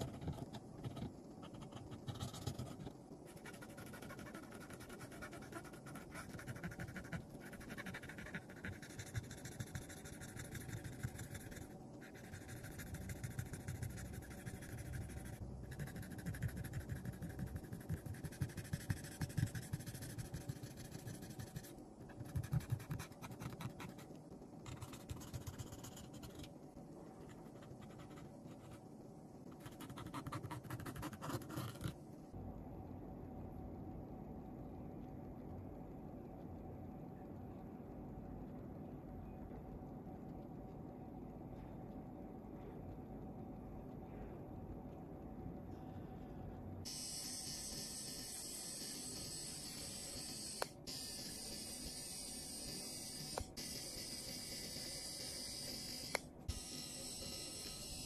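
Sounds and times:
cotton swab scratchy rubbing: 3.4s - 11.3s.

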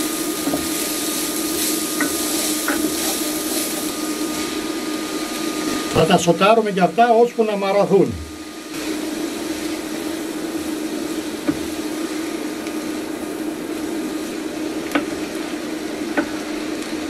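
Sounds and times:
vegetables sizzling in a frying pan: 0.0s - 6.6s, 7.7s - 17.0s
hob humming: 0.0s - 17.0s
wooden spoon knocking on a pan: 2.0s - 3.0s, 11.4s - 11.7s.

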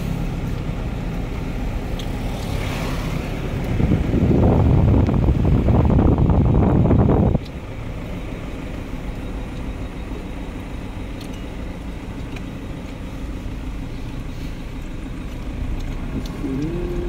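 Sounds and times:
road vehicle rumble: 0.0s - 17.0s
wind on microphone: 3.7s - 7.4s.

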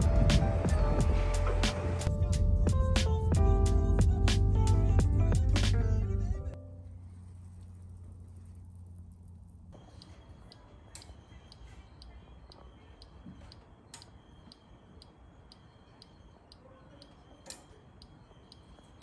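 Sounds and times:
sharp clicks: 8.7s - 19.0s
timer dial ticking: 8.7s - 19.0s.

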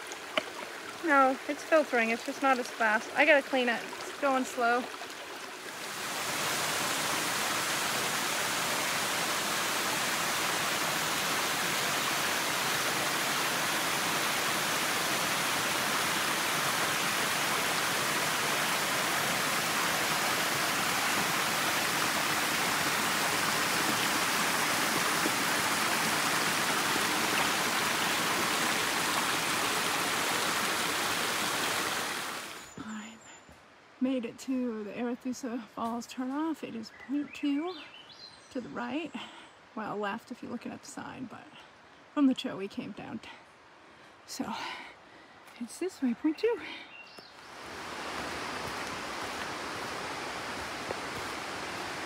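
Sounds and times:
stream rushing over rocks: 0.0s - 32.8s, 47.3s - 52.0s.

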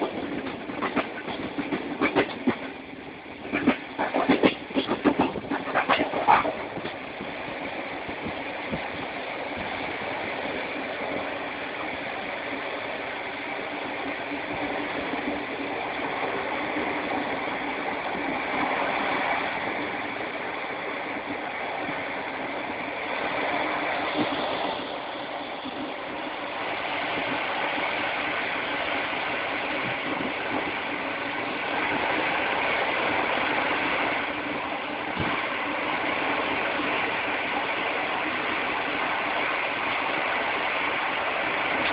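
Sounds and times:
wheels knocking on track: 0.0s - 7.3s, 35.1s - 35.5s
moving train running noise: 0.0s - 41.9s.

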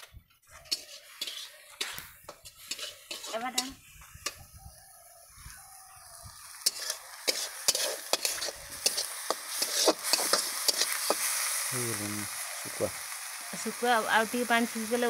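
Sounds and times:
metal spatula scraping pan: 0.5s - 4.4s, 6.6s - 11.3s
fish frying in oil: 5.8s - 15.0s.

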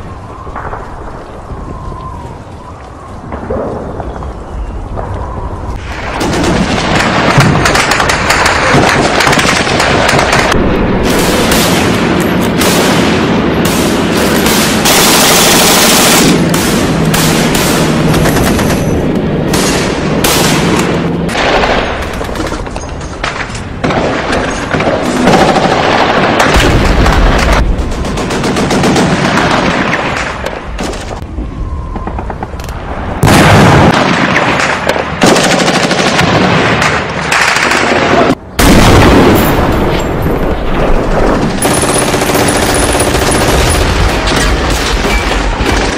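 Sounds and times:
booms: 3.2s - 14.9s, 19.5s - 28.2s, 29.0s - 35.1s, 38.0s - 41.6s
machine-gun bursts: 41.6s - 45.9s.

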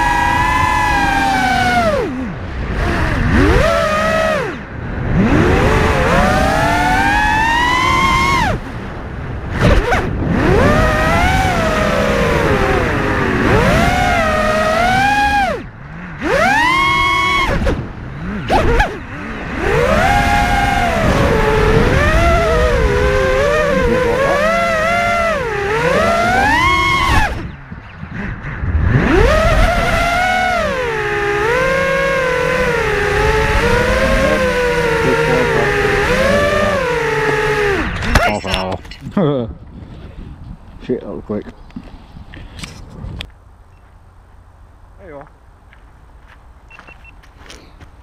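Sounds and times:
drone motors whining: 0.0s - 39.2s.

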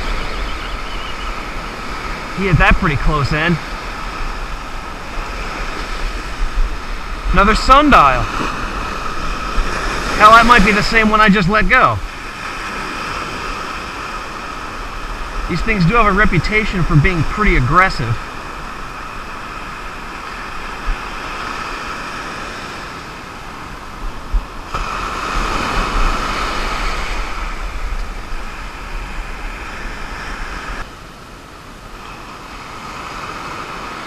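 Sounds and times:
wind buffeting microphone: 0.0s - 16.1s
surf washing on sand: 0.0s - 34.0s.

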